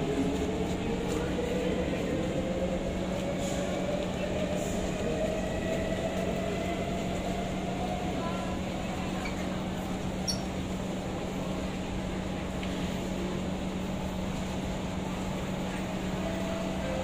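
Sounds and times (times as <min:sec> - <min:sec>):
stationary train humming: 0:00.0 - 0:17.0.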